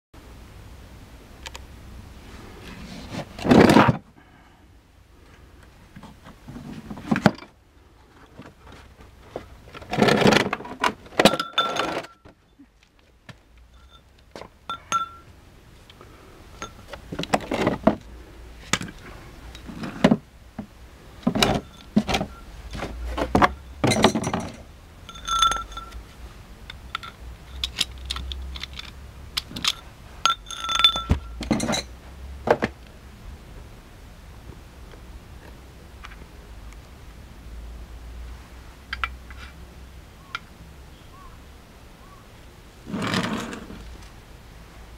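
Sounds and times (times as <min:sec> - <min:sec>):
metal clinks and knocks: 0:11.2 - 0:12.4, 0:13.7 - 0:15.3, 0:16.6 - 0:17.9, 0:21.2 - 0:26.1, 0:26.7 - 0:32.0.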